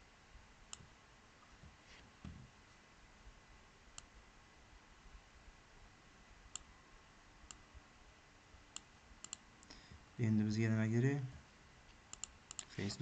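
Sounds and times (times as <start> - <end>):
computer mouse clicks: 8.7 - 9.8, 12.1 - 12.7.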